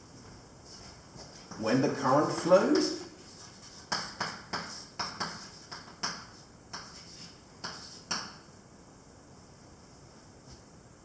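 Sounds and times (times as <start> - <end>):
chalk tapping and scraping on blackboard: 0.7 - 8.4.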